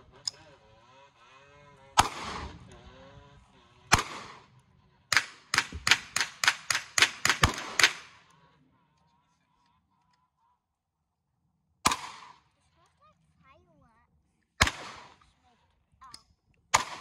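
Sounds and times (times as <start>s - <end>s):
gunshots: 2.0s - 2.7s, 3.9s - 8.3s, 11.8s - 12.5s, 14.6s - 15.3s, 16.7s - 17.0s.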